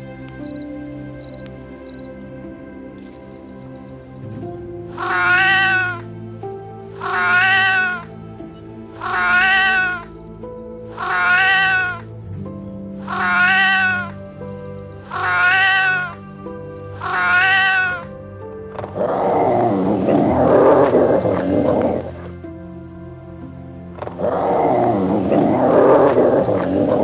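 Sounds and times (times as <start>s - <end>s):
background music: 0.0s - 27.0s
cat meowing: 5.0s - 6.1s, 7.0s - 8.1s, 9.0s - 10.2s, 10.9s - 12.2s, 13.1s - 14.3s, 15.1s - 16.3s, 17.0s - 18.2s.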